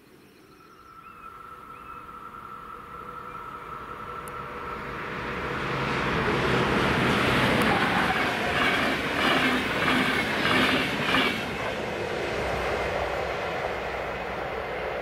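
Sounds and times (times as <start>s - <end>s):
receding train rumble: 0.8s - 15.0s
train wheels clattering: 7.2s - 11.6s.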